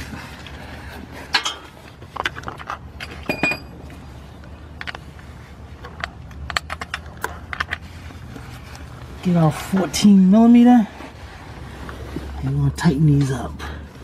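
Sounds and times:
metal tools clinking: 3.0 - 3.8.

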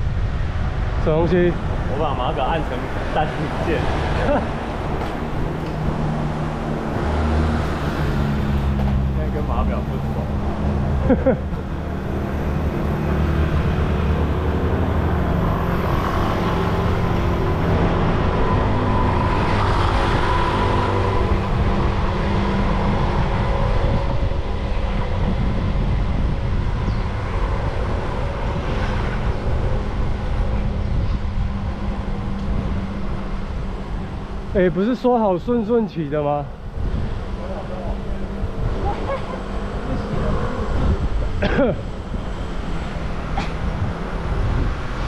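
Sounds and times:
motor traffic hum: 0.0 - 45.0
road noise: 0.0 - 45.0
wind rumble: 0.0 - 45.0.

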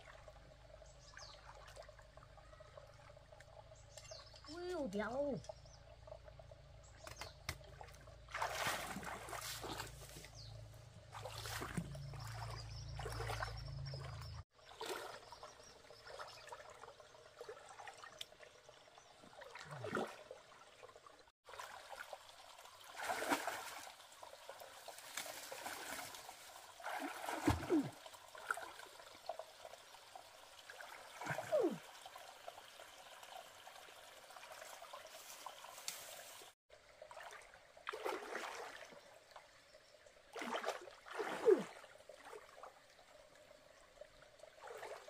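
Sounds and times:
trickle of flowing water: 0.0 - 45.0
water splashing: 7.1 - 32.1, 33.8 - 39.0, 40.3 - 43.4, 44.0 - 45.0.

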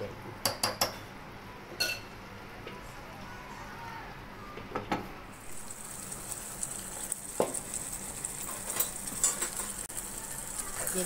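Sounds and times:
chicken sizzling in oil: 5.4 - 11.0.

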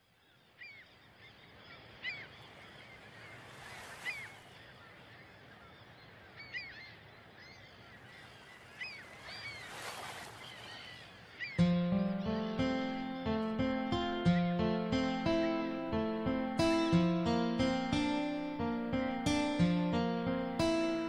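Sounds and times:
birds chirping: 0.0 - 15.6
acoustic guitar music: 11.6 - 21.0.

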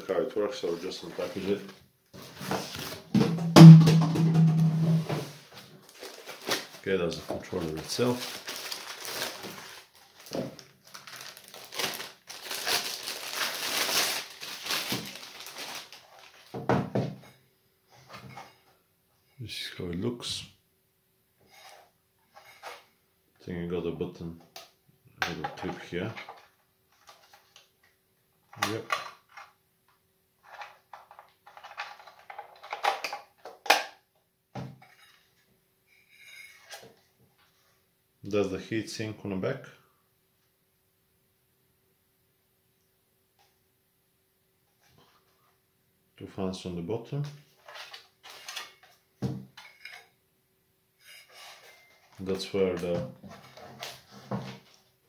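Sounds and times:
plastic bag crinkling: 5.7 - 16.6.

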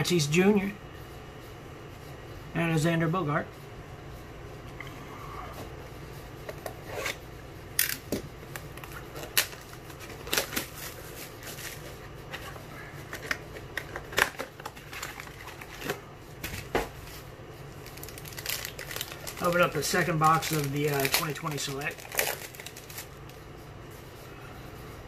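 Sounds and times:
card packs rustling: 8.0 - 23.4.

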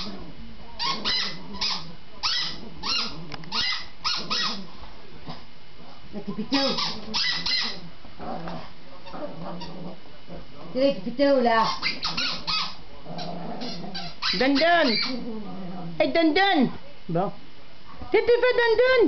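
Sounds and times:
squeaky toys squeaking: 0.8 - 4.6, 6.5 - 7.8, 11.6 - 15.2.

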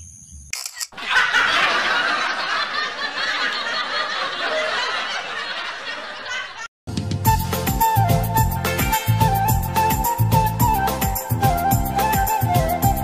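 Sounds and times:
crowd laughing: 0.9 - 6.7.

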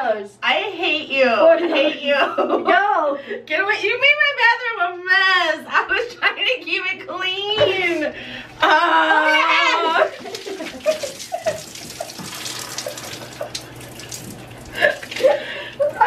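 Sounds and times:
soda splashing and dripping: 10.0 - 16.0.

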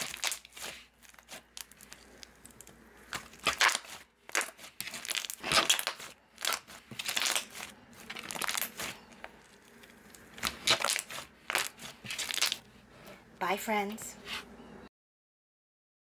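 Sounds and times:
slime being kneaded: 0.0 - 12.6.

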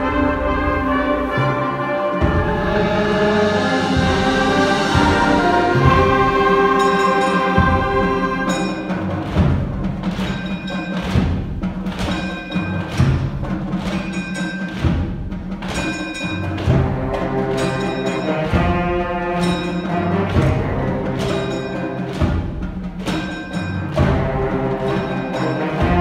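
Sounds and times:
wind chords from band: 0.0 - 9.4
percussion strikes: 0.0 - 26.0.

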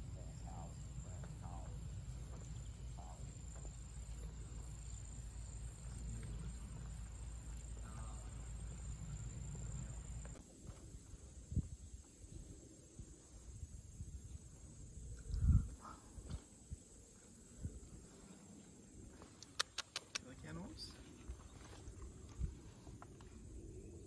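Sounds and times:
insect drone: 0.0 - 24.0
wind rumble on microphone: 9.1 - 16.9.

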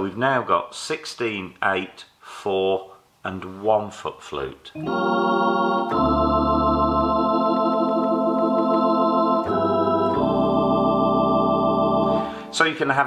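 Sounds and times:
electronic organ chords: 4.8 - 13.0.

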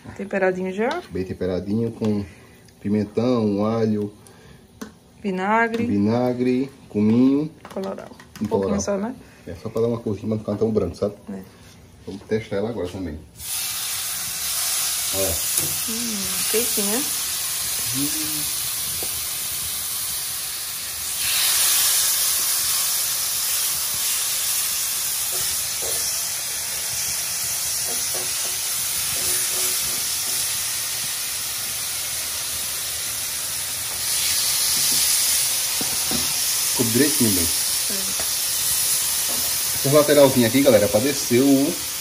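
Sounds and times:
chicken sizzling on griddle: 13.4 - 42.0
fork knocking on griddle: 27.8 - 30.4, 35.8 - 36.3.

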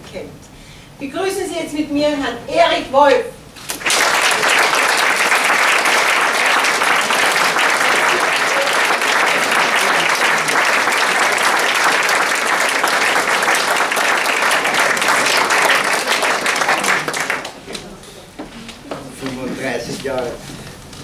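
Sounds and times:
audience applauding: 3.7 - 17.8.

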